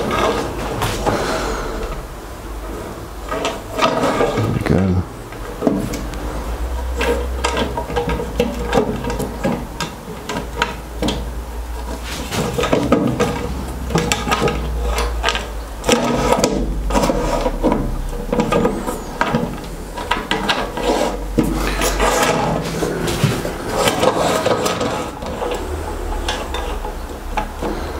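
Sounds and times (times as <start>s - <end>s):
metal rail scraping and clunking: 0.0s - 4.7s, 5.4s - 27.9s.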